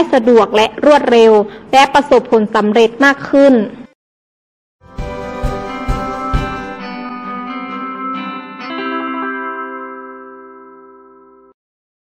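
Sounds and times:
final music chord ringing: 4.8s - 11.6s.

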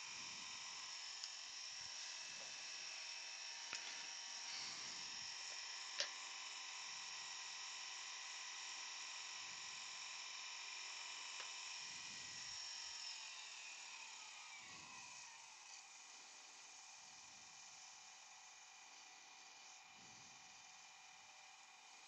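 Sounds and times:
wood lathe motor whining: 0.0s - 16.0s.

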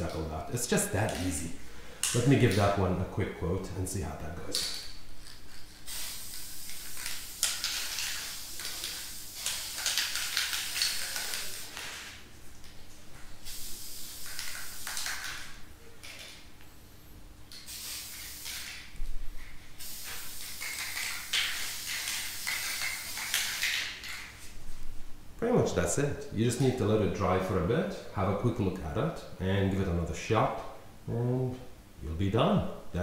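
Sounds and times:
spray paint can hissing: 5.2s - 12.2s, 13.4s - 15.6s, 17.5s - 18.9s, 19.8s - 24.3s.

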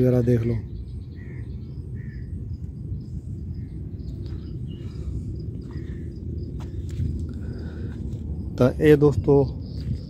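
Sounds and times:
faint bird chirps: 0.0s - 6.9s
steady low rumble: 0.0s - 10.0s.

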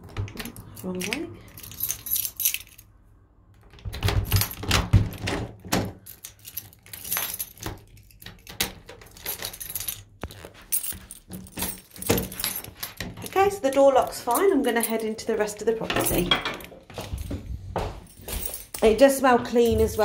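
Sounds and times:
keys jangling: 0.2s - 2.9s, 3.9s - 20.0s
key clicking in door lock: 3.6s - 10.1s.

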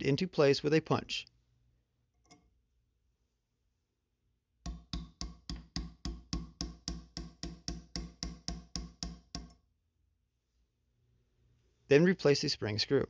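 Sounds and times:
hammer tapping metal punch: 4.6s - 9.6s.

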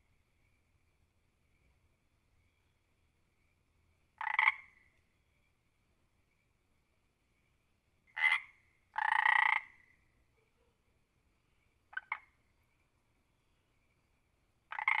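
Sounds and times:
frog croaking: 4.2s - 4.9s, 8.1s - 10.0s, 11.9s - 12.4s, 14.7s - 15.0s.

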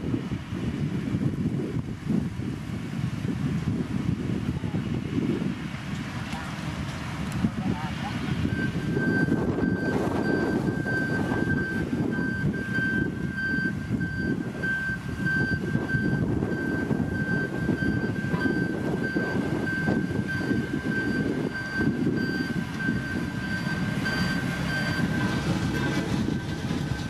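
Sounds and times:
diesel engine running: 0.0s - 27.0s
reversing alarm beeping: 8.4s - 26.8s.

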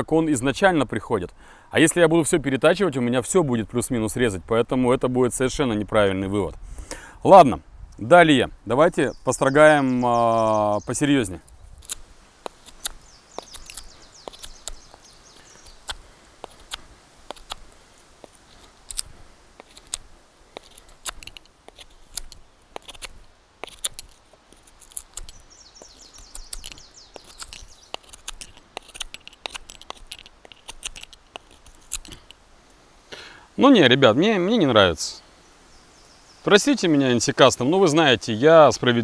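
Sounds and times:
birds chirping: 6.9s - 39.0s
knife scraping wood: 11.8s - 32.4s.

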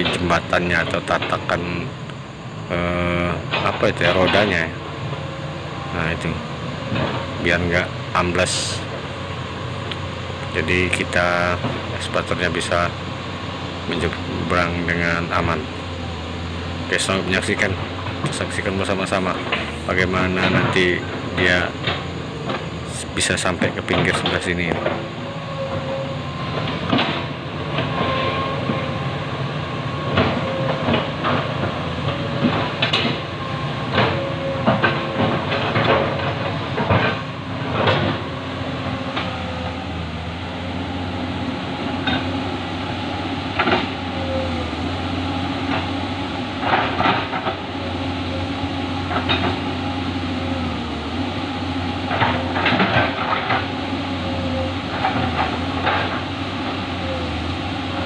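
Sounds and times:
clanking crawler tracks and bucket: 0.0s - 58.0s
excavator diesel engine running: 0.0s - 58.0s
river flowing: 35.3s - 58.0s.

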